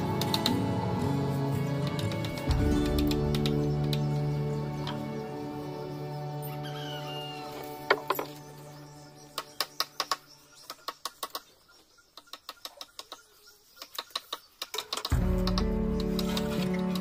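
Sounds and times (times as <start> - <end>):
loud background music: 0.0 - 6.6, 15.1 - 17.0
tools tapping on wooden planks: 7.8 - 8.4.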